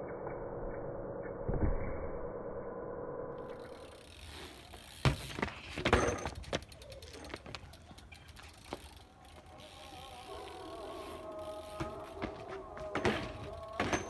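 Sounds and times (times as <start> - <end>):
bike knocks and rattles: 4.1 - 9.4, 11.0 - 14.0.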